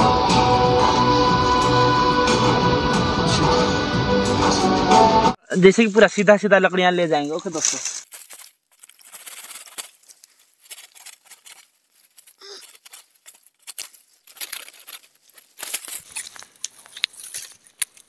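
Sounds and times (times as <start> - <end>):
dry leaves and twigs rustling: 6.8 - 18.0
green wood cracking and snapping: 7.6 - 18.0.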